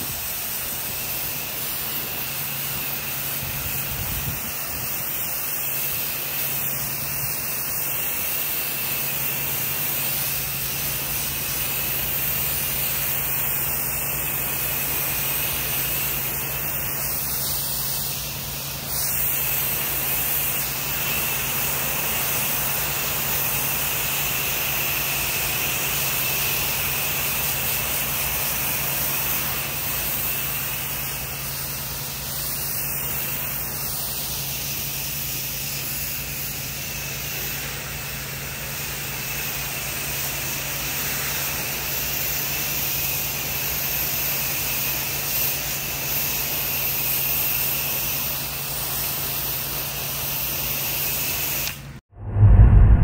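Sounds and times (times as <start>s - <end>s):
pressure washer spraying water: 0.0s - 52.0s
machine humming: 52.2s - 53.0s.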